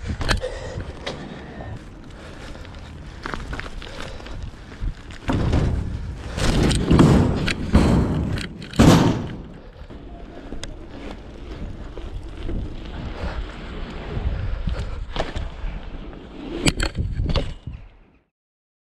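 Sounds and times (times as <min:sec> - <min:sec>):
bike tyres rolling on concrete: 0:00.0 - 0:18.2
wheels thumping ramp: 0:04.9 - 0:18.0.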